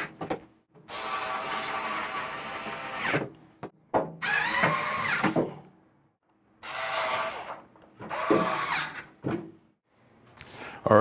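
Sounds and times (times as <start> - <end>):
electric screwdriver driving screws: 0.9 - 3.2, 4.2 - 5.4, 6.6 - 9.0.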